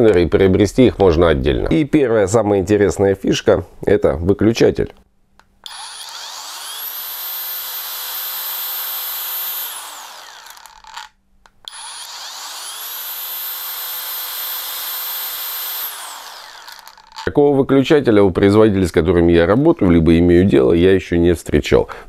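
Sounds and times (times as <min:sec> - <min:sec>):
angle grinder motor whining: 0:05.6 - 0:17.3.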